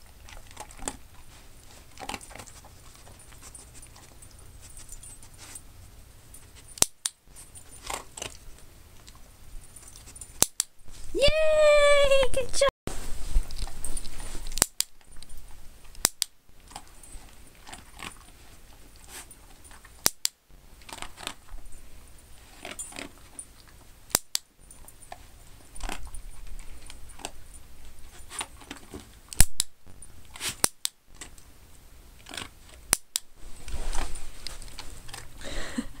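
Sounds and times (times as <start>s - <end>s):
light jingling: 2.1s - 6.7s, 7.3s - 11.0s, 16.7s - 19.9s
fabric rustling: 12.9s - 14.6s, 33.4s - 35.4s.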